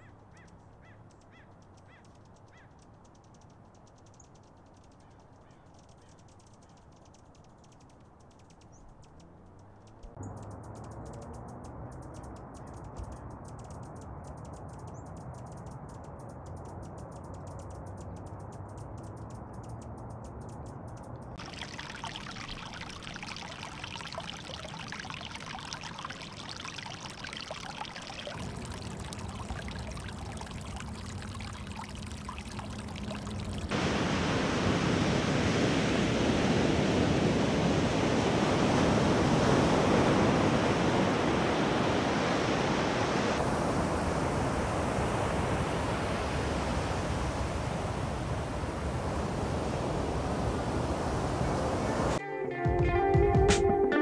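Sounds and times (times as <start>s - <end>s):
faint crackling haze: 21.4s - 52.2s
stream splashing over rocks: 21.4s - 52.2s.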